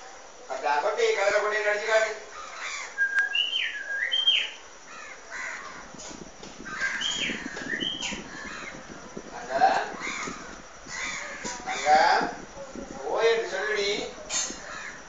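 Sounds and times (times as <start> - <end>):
rough bird calls: 1.9 - 15.0
myna whistling: 3.0 - 4.6, 7.0 - 8.2.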